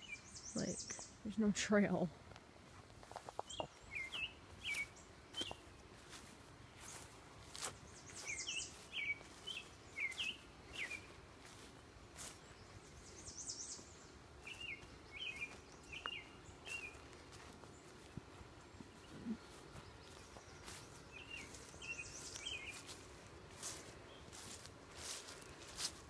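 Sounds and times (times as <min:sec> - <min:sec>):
songbird chirping: 0:00.0 - 0:26.0
vegetation rustling against phone: 0:02.6 - 0:12.5, 0:19.0 - 0:26.0.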